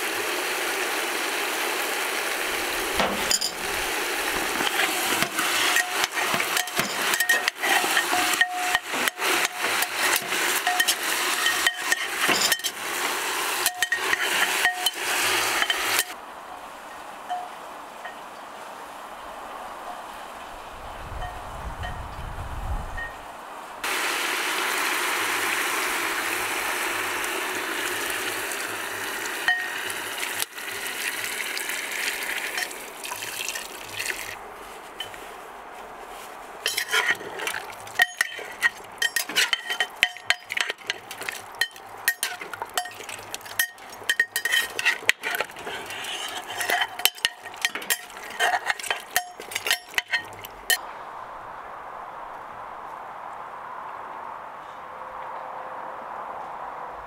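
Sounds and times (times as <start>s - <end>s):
loud hiss from pot: 2.5s - 16.2s
utensil clinking against pot: 3.0s - 16.2s, 29.4s - 29.8s, 36.6s - 50.8s.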